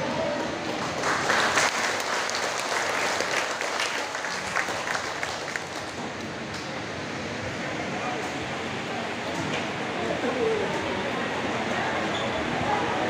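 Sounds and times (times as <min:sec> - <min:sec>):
congregation applauding: 0:00.7 - 0:06.0.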